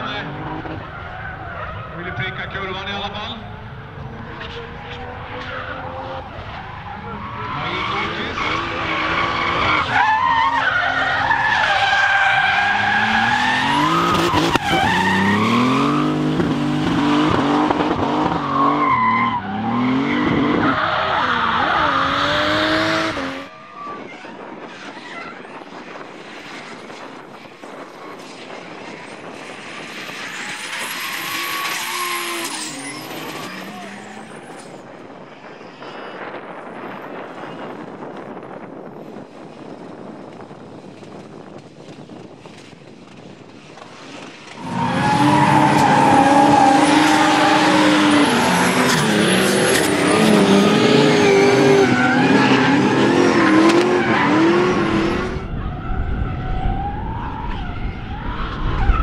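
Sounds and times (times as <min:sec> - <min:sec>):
tyres skidding: 0:00.0 - 0:59.0
car engine revving hard: 0:19.5 - 0:23.5, 0:44.6 - 0:55.4.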